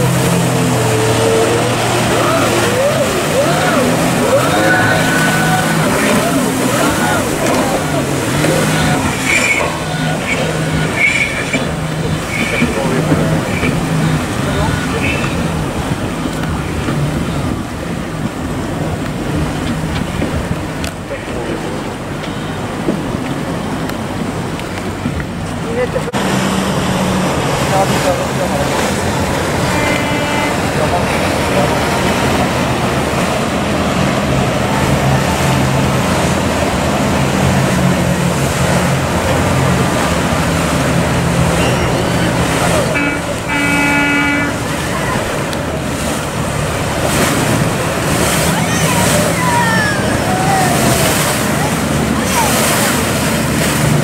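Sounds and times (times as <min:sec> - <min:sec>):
wind on microphone: 0:00.0 - 0:21.1
watercraft engine humming: 0:00.0 - 0:54.0
waves breaking: 0:00.0 - 0:54.0.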